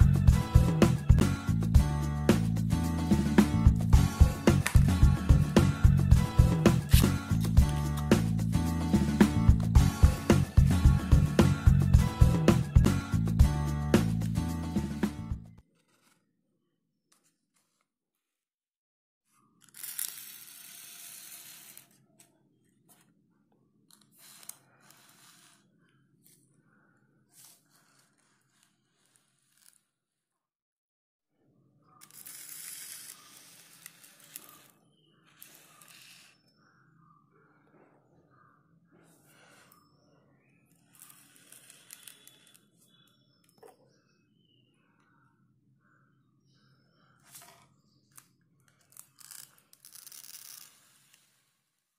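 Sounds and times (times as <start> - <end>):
matchboxes rustling and scraping: 32.0 - 34.8, 35.4 - 36.3, 40.8 - 42.7, 48.9 - 51.5.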